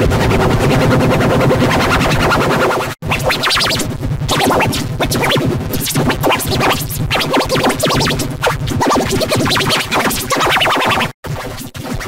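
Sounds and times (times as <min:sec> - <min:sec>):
processed electronic audio: 0:00.0 - 0:12.0
scratch-like pitch sweeps: 0:00.0 - 0:12.0.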